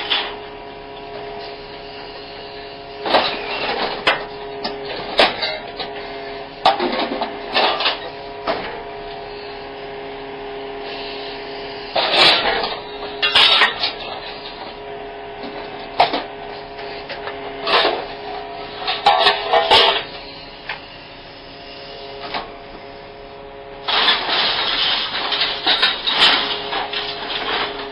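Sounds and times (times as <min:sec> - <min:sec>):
scrap metal clanking and scraping: 0:00.0 - 0:00.4, 0:01.2 - 0:08.8, 0:11.8 - 0:14.8, 0:15.4 - 0:20.4, 0:23.8 - 0:27.9
hydraulic machine whine: 0:00.0 - 0:27.9.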